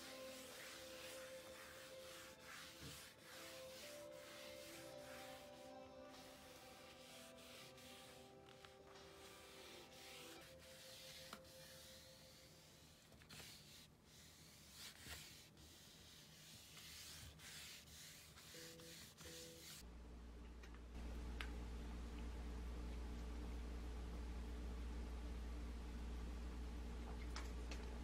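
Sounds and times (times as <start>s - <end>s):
quiet background music: 0.0s - 22.9s
steady low hum: 19.8s - 28.0s.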